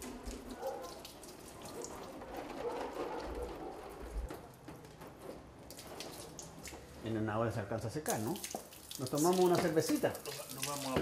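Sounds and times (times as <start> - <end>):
water spraying from a hose: 0.0 - 2.3, 5.6 - 6.9, 8.0 - 11.0.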